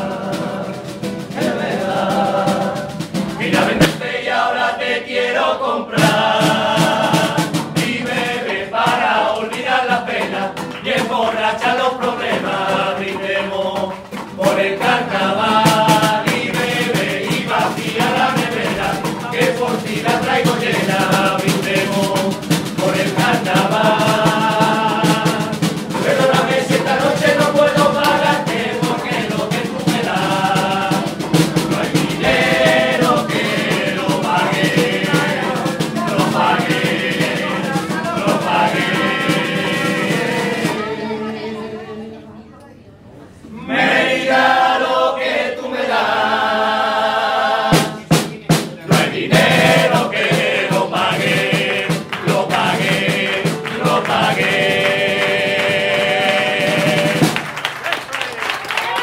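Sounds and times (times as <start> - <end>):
strummed acoustic guitar: 0.0 - 4.2, 6.0 - 41.5
snare drum beating time: 0.0 - 4.7, 5.9 - 41.0, 47.6 - 57.9
group singing in chorus: 0.0 - 42.4, 43.3 - 48.2, 48.8 - 57.7.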